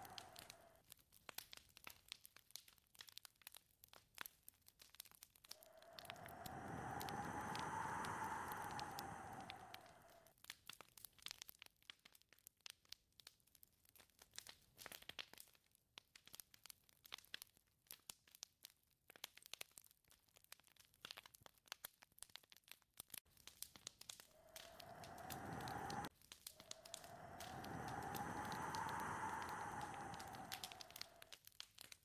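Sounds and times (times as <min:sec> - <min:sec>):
faint crackling and ticking: 0:00.0 - 0:32.0
gust of wind: 0:05.6 - 0:10.3, 0:24.3 - 0:31.3.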